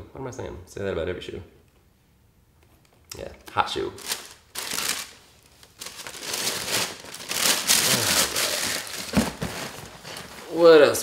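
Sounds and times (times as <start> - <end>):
paper rustling and crinkling: 4.0 - 11.0.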